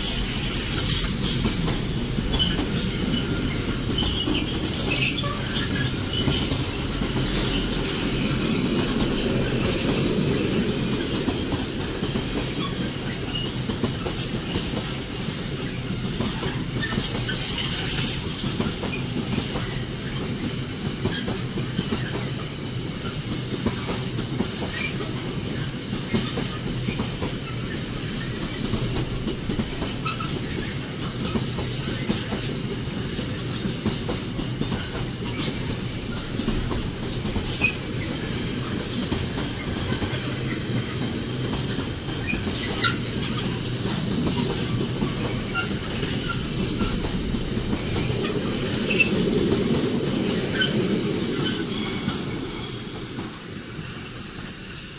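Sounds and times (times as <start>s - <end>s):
wheels clicking over rail joints: 0.0s - 51.6s
train wheels rumbling on rail: 0.0s - 54.9s.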